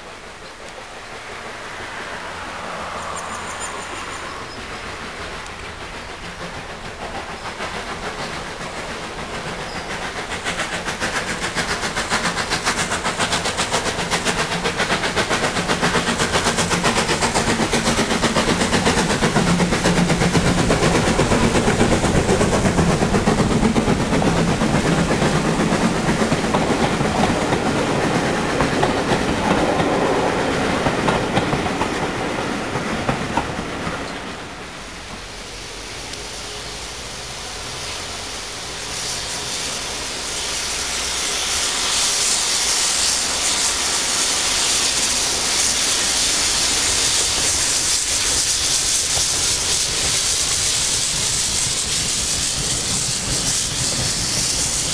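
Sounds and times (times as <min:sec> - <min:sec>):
steam locomotive beat: 0:00.0 - 0:54.9
wheels clattering over rails: 0:38.9 - 0:54.9.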